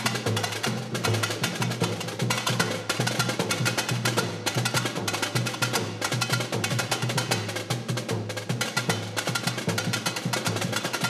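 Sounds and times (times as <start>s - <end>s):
samba percussion rhythm: 0.0s - 11.0s.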